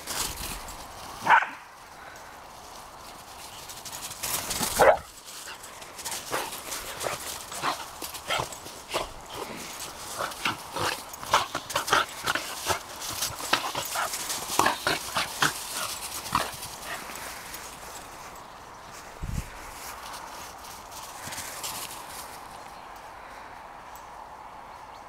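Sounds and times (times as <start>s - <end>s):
scuffling in grass: 0.0s - 22.9s
small dogs yapping and yelping: 6.2s - 17.2s.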